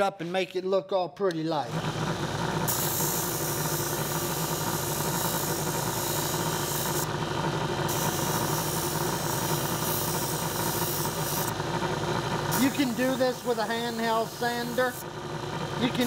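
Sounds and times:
disc sander motor humming: 0:01.7 - 0:16.0
abrasive hiss of metal sanding: 0:02.7 - 0:07.1, 0:07.8 - 0:11.5, 0:12.5 - 0:15.0.

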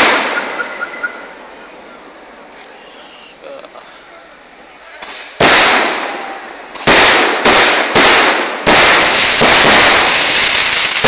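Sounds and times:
fireworks bangs: 0:00.0 - 0:01.6, 0:05.0 - 0:11.0.

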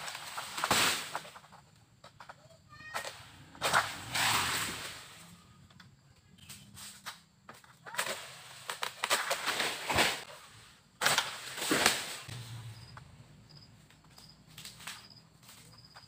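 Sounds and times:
sickle cutting palm stalks: 0:00.0 - 0:01.5, 0:03.1 - 0:05.4, 0:06.4 - 0:12.8
palm fronds rustling: 0:00.0 - 0:01.8, 0:02.8 - 0:05.5, 0:07.8 - 0:13.2, 0:13.8 - 0:16.0.

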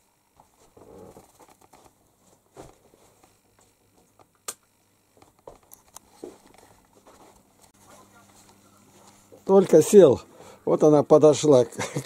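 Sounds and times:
quiet footsteps and shuffling: 0:00.4 - 0:04.3, 0:05.1 - 0:10.6.

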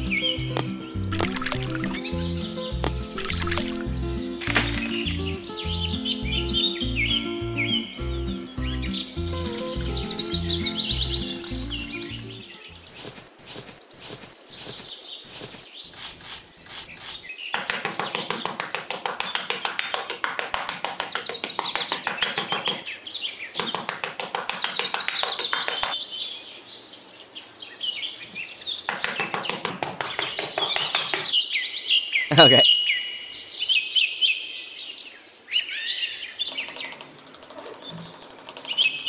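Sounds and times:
birds chirping in trills: 0:00.0 - 0:18.5, 0:19.2 - 0:39.0
dense fast ticking: 0:36.5 - 0:39.0.

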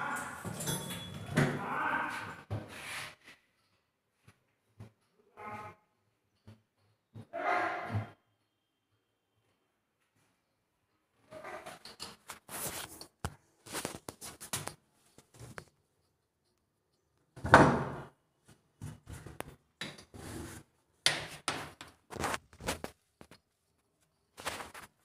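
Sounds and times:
hands handling hoses and fittings: 0:11.8 - 0:16.7.

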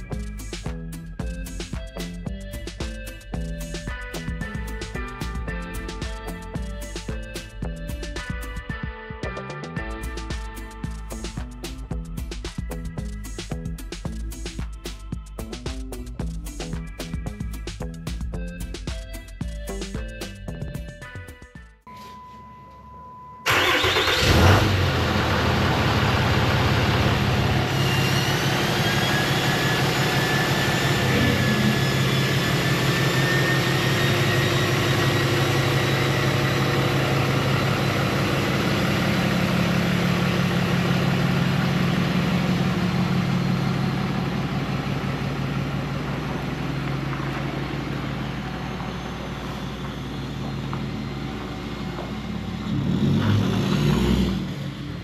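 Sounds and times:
diesel truck engine running: 0:00.0 - 0:08.8, 0:23.5 - 0:55.0
high turbo whine: 0:23.4 - 0:55.0.

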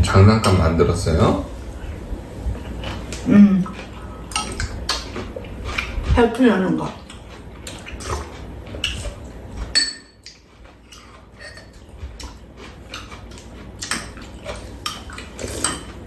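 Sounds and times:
metal spoons clinking against bowls: 0:09.7 - 0:10.3.

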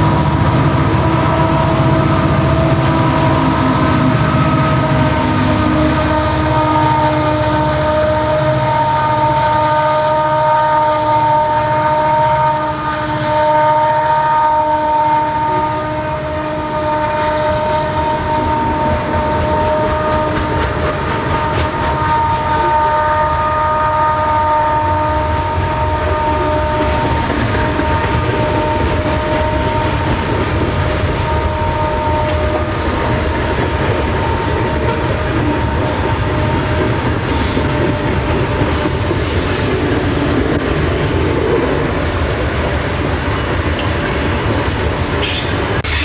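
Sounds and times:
turbocharger howl: 0:00.0 - 0:42.4
diesel engines throbbing: 0:00.0 - 0:46.0.

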